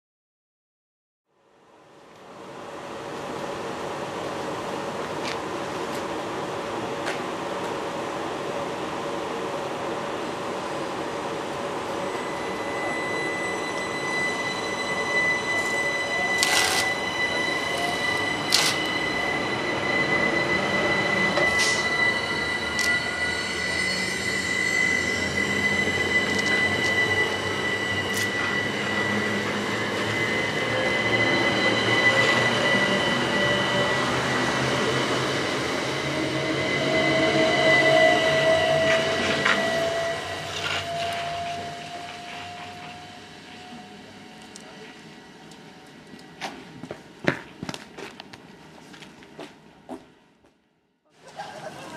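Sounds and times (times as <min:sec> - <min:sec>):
electric train whine: 0:01.6 - 0:49.8.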